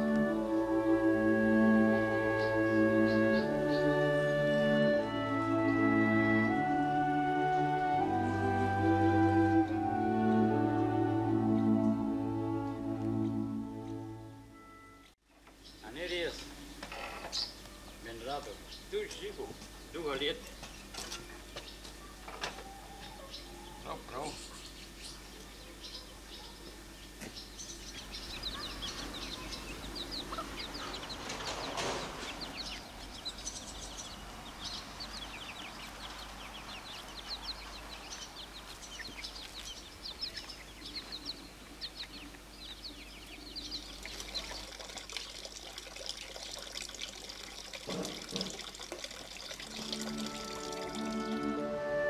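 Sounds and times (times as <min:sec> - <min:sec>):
chicks peeping: 0:00.0 - 0:14.0, 0:20.1 - 0:44.8
chickens clucking: 0:20.6 - 0:44.7
water running into a trough: 0:43.9 - 0:51.6.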